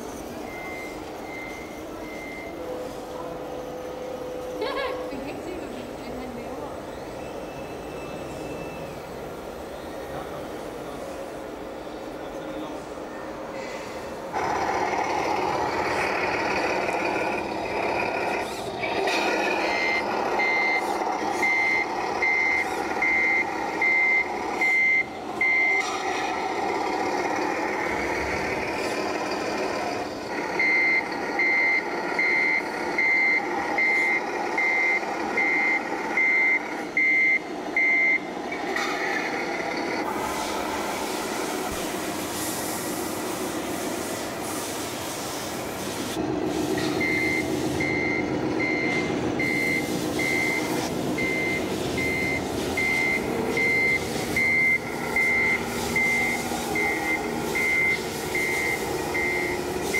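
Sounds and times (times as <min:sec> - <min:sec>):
high reversing beeps: 0:00.0 - 0:04.6, 0:06.8 - 0:10.2, 0:19.4 - 0:38.3, 0:46.8 - 0:59.9
steady engine-like drone: 0:00.0 - 0:59.9
hiss: 0:40.1 - 0:47.9, 0:49.4 - 0:59.9.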